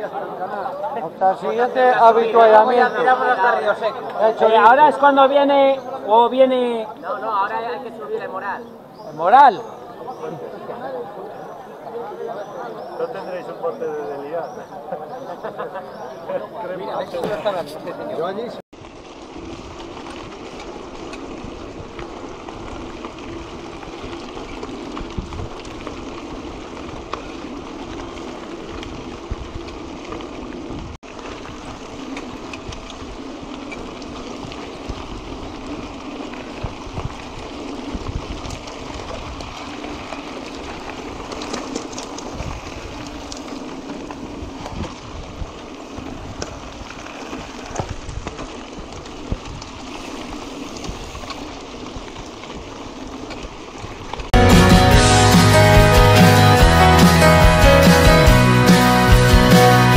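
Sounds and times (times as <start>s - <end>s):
bike tyres crunching on gravel: 0.0s - 59.9s
stones and bike rattling: 17.0s - 54.4s.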